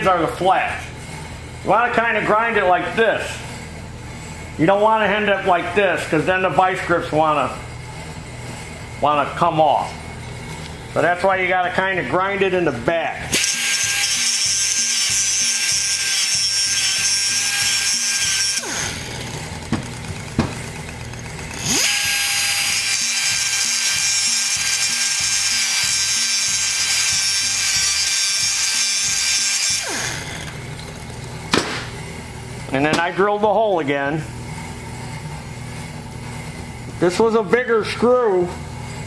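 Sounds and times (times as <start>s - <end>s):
grinder whining and grinding: 0.0s - 39.0s
clunk: 31.5s - 31.9s.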